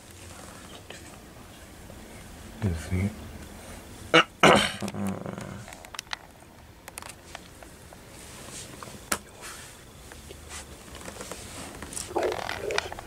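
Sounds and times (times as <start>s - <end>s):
hand stroking dog's coat: 10.4s - 12.2s.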